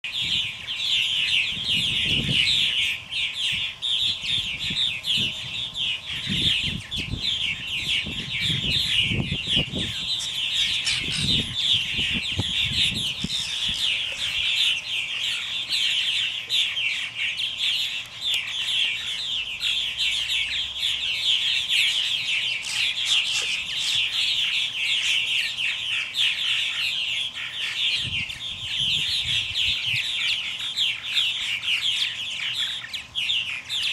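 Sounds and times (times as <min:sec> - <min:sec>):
purple martins chattering: 0:00.1 - 0:33.9.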